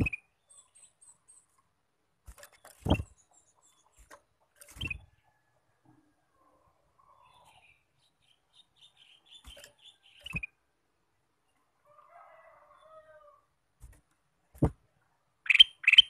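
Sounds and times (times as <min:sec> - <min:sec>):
bird chirping and warbling: 0:04.7 - 0:05.2, 0:07.0 - 0:10.6, 0:15.4 - 0:16.0.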